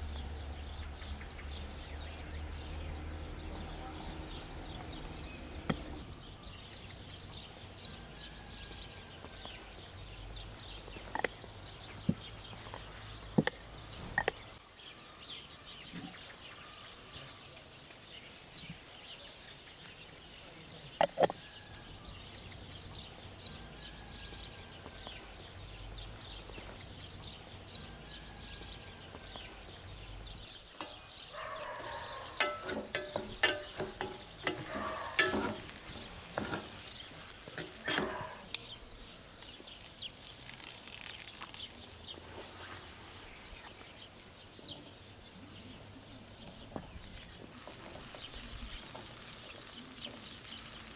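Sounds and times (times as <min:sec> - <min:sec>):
birds chirping: 0:00.0 - 0:50.9
wooden spoon stirring: 0:30.8 - 0:40.1
pot and lid clattering: 0:32.0 - 0:38.4
onions frying in a pot: 0:32.3 - 0:43.4, 0:47.5 - 0:50.9.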